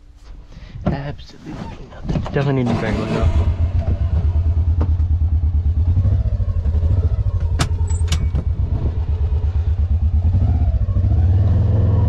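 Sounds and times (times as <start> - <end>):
vehicle engine running: 2.5 - 12.0.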